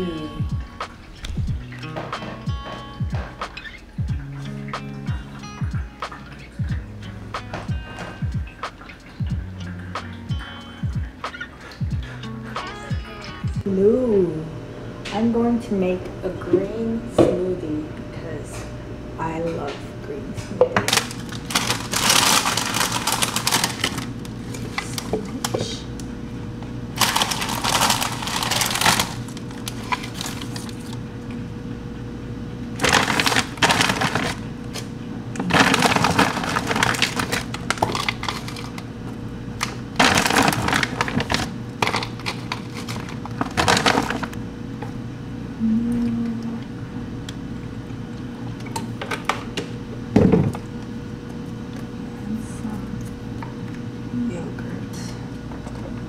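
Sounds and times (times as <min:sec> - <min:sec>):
steady low hum: 0:00.0 - 0:56.0
plastic bags rustling: 0:20.9 - 0:25.8, 0:27.0 - 0:31.0, 0:32.8 - 0:34.8, 0:35.4 - 0:38.9, 0:39.6 - 0:44.4.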